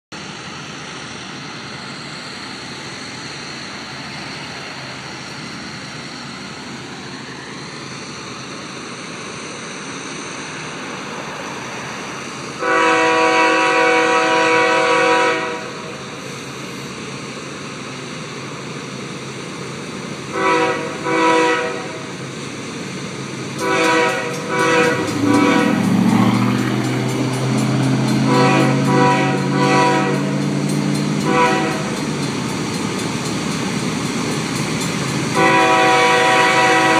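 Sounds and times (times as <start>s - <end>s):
diesel locomotive rumble: 0.1s - 36.9s
locomotive horn blasts: 12.6s - 15.8s, 20.3s - 22.0s, 23.6s - 26.6s, 28.1s - 30.4s, 31.2s - 32.0s, 35.3s - 36.9s.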